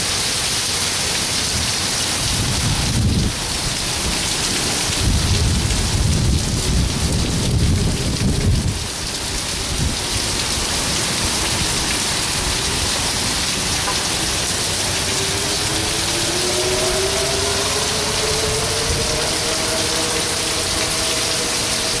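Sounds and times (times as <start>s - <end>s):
heavy rain pouring: 0.0s - 22.0s
low rumble of thunder: 5.0s - 8.8s.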